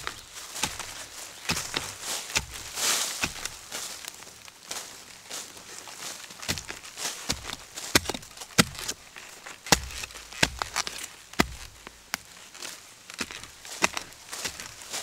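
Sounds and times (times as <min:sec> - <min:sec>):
hand hoe chopping dry soil: 0:00.0 - 0:04.2, 0:06.4 - 0:12.3, 0:13.1 - 0:15.0.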